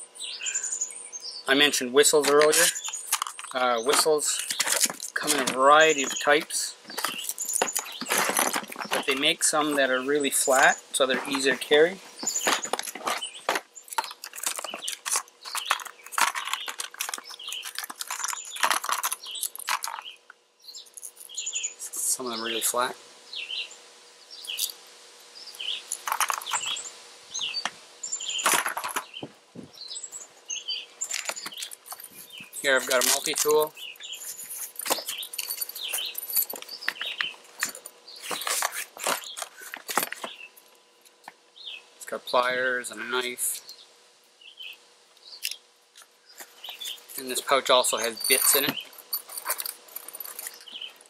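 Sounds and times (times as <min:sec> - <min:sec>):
birds chirping: 0:00.0 - 0:51.0
plastic blister pack crackling: 0:12.2 - 0:20.1
tool pulled from belt pouch: 0:31.1 - 0:40.3.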